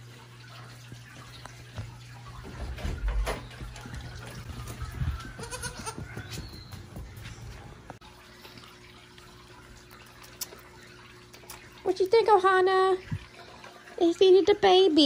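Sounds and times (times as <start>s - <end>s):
goat kid bleating: 5.0s - 6.2s.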